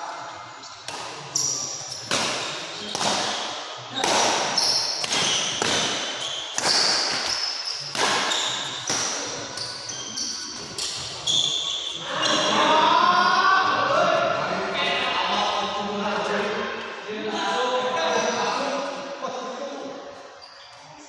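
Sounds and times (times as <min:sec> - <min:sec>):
rackets hitting shuttlecock: 0:00.9 - 0:09.7
shoes squeaking on court: 0:04.5 - 0:12.4.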